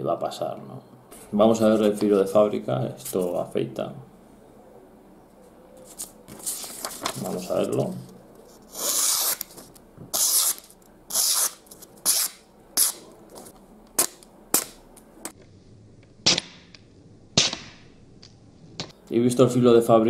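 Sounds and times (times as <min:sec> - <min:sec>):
knife slicing paper: 0:08.6 - 0:09.5.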